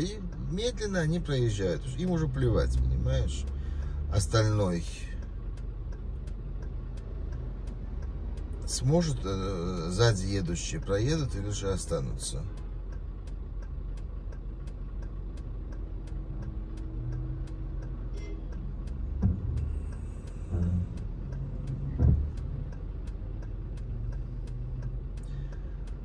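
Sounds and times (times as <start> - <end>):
car engine hum: 0.0 - 26.0
fast even ticking: 0.0 - 26.0
short low thumps: 18.7 - 25.2.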